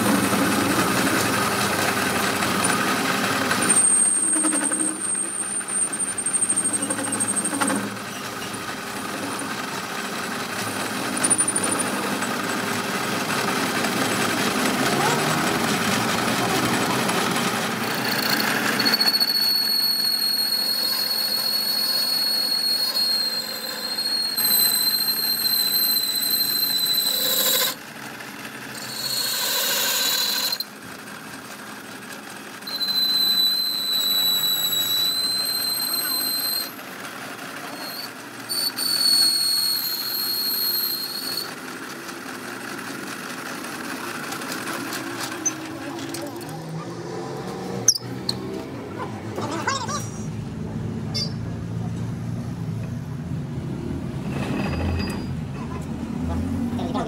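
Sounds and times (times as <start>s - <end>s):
metal machining squeal: 0.0s - 12.6s, 16.7s - 30.8s, 32.4s - 41.6s, 44.6s - 47.0s, 47.8s - 48.7s, 51.1s - 51.6s, 54.1s - 56.0s.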